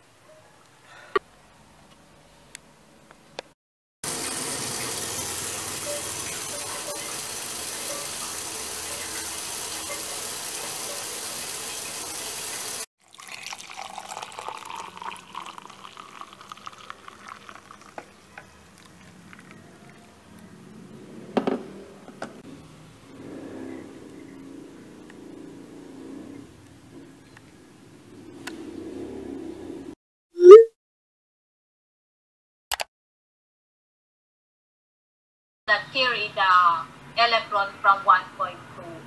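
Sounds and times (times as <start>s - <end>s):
shower head spraying water: 4.1s - 12.9s
water poured into a mug: 4.1s - 20.0s.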